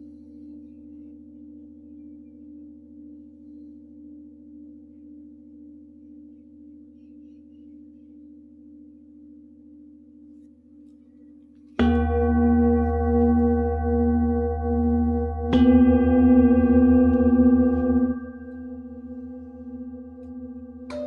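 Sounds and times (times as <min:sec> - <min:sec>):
singing bowl ringing: 0:11.8 - 0:21.0.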